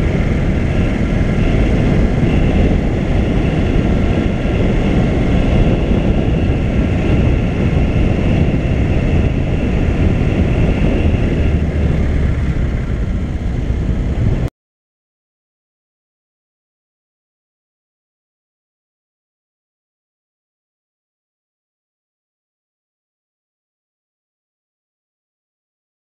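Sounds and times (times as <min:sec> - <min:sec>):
faint high whine: 0:00.0 - 0:14.4
car driving rumble: 0:00.0 - 0:14.5.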